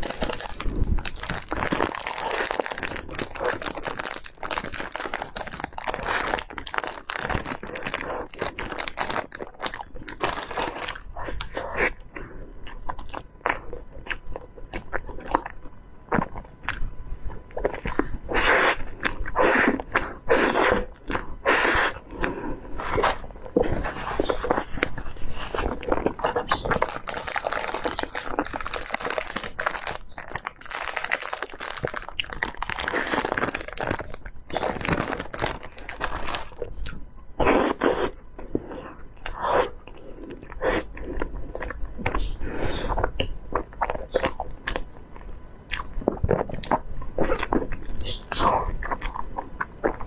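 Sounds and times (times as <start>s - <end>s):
plastic wrap crinkling: 0.0s - 11.5s, 22.8s - 36.9s
biting and chewing cake: 0.0s - 50.0s.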